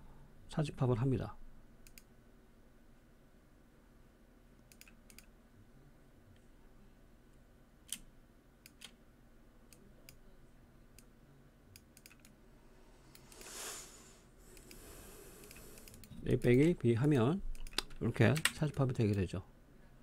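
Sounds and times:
computer mouse clicks: 1.8s - 2.1s, 4.6s - 5.3s, 7.8s - 9.0s, 11.7s - 12.4s, 13.1s - 13.6s, 14.5s - 16.8s, 17.5s - 19.2s.

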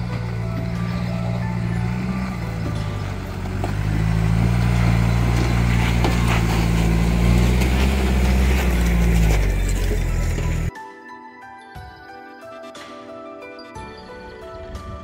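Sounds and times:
pickup truck engine labouring: 0.0s - 10.7s
stones crunching under tyres: 0.0s - 10.7s.

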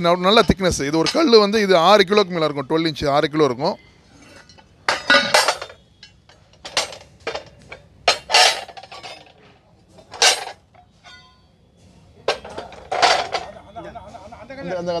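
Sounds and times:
iron griddles clanking together: 0.3s - 1.5s, 4.2s - 11.4s, 12.3s - 13.6s.

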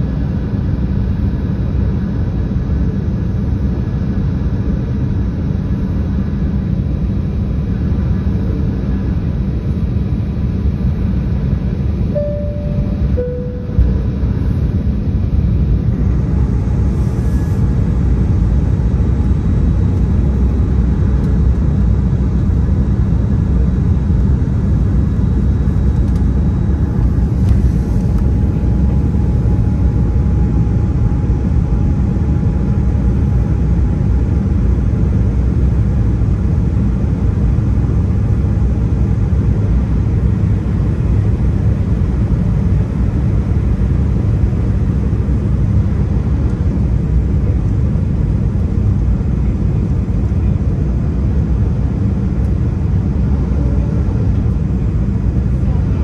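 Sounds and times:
airliner cabin rumble: 0.0s - 56.0s
faint thin whine: 12.1s - 18.0s.

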